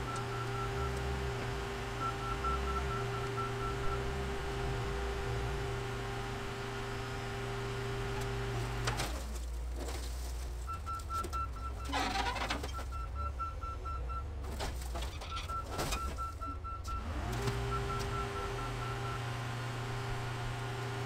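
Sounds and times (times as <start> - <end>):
diesel engines running: 0.0 - 9.8, 15.6 - 21.0
backup alarm beeping: 2.0 - 4.7.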